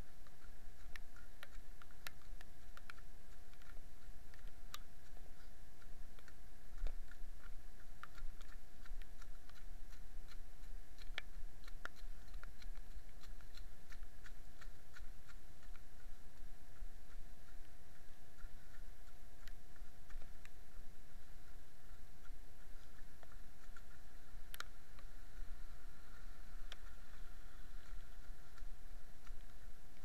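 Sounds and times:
faint electronic whine: 0:00.0 - 0:30.0
ticks and clicks on camera body: 0:00.1 - 0:20.8, 0:22.2 - 0:25.1.

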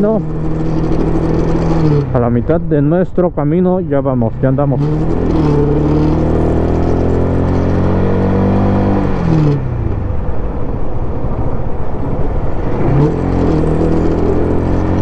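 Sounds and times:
motorcycle engine running: 0:00.0 - 0:02.9
wind rush on microphone: 0:07.7 - 0:15.0.

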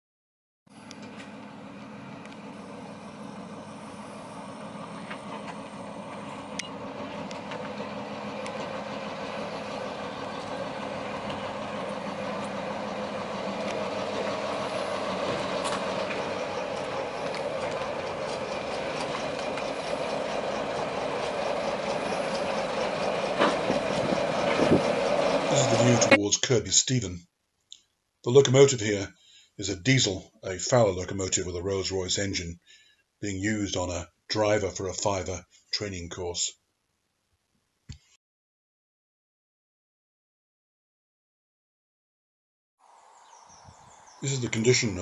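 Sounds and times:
diesel locomotive engine running: 0:00.7 - 0:26.8, 0:28.3 - 0:36.2, 0:42.8 - 0:45.0
wheels clicking on rails: 0:00.8 - 0:26.2, 0:44.1 - 0:45.0.

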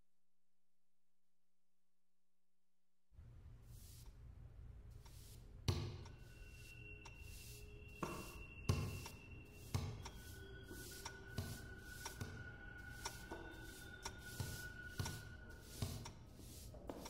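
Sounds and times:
faint high tones: 0:06.1 - 0:16.4.

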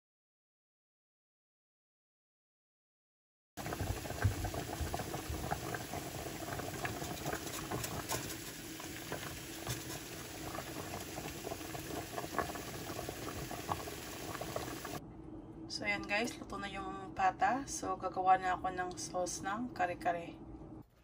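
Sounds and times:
water boiling in a pot: 0:03.6 - 0:15.0.

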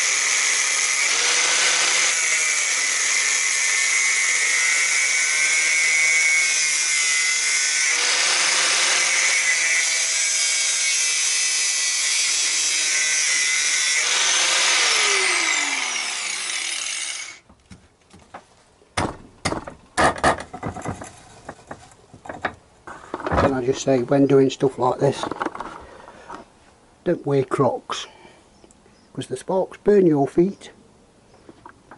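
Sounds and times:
angle grinder cutting metal: 0:00.0 - 0:17.4
metal tube knocks and clatters: 0:19.4 - 0:22.6.

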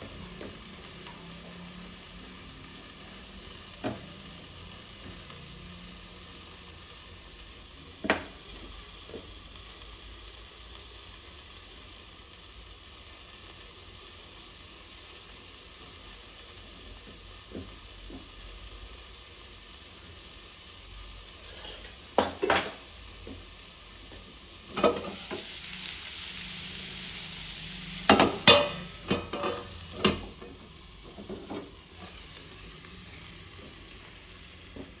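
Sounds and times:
vegetables sizzling in a pan: 0:00.0 - 0:35.0
metal lid and pan clanking: 0:21.4 - 0:22.8, 0:28.1 - 0:30.3.

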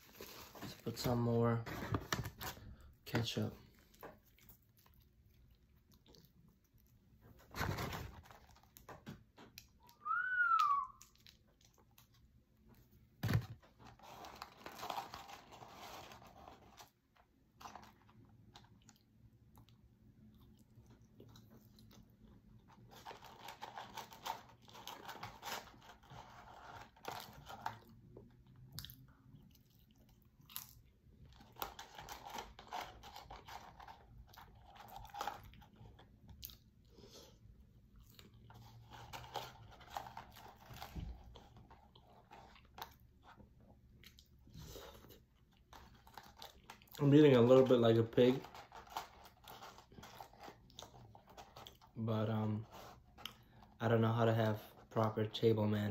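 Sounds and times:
person chewing fries: 0:03.7 - 0:07.2, 0:17.6 - 0:47.0, 0:48.6 - 0:52.0, 0:52.9 - 0:53.8.

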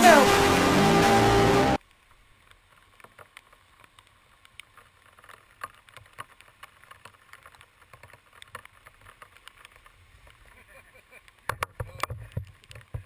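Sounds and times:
sharp ticks and knocks: 0:02.4 - 0:10.4, 0:11.2 - 0:13.0.

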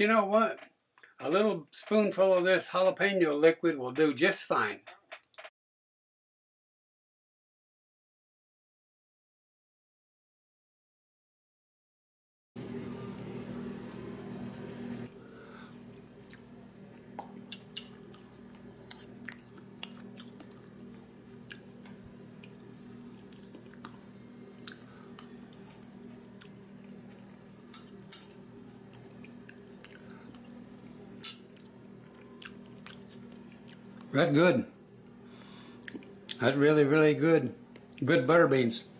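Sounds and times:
steady low hum: 0:12.6 - 0:38.9
chewing: 0:16.2 - 0:21.8, 0:22.4 - 0:24.0, 0:24.6 - 0:25.6, 0:28.9 - 0:34.2, 0:35.2 - 0:36.4.

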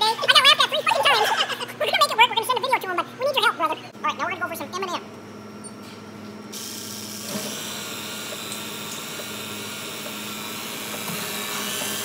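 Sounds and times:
low machine hum: 0:00.0 - 0:12.0
soft-serve machine hissing: 0:06.5 - 0:12.0.

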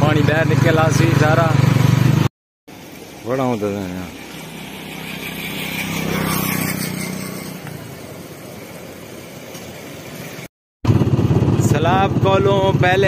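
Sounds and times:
vehicle engine passing by: 0:03.5 - 0:11.5.

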